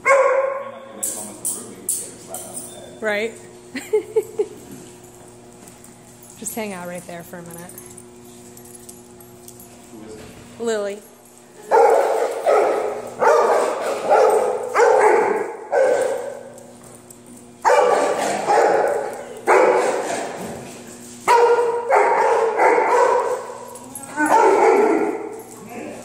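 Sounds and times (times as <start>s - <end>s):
dog barking: 0.0s - 0.9s, 11.6s - 16.6s, 17.6s - 20.3s, 21.3s - 23.6s, 24.2s - 25.4s.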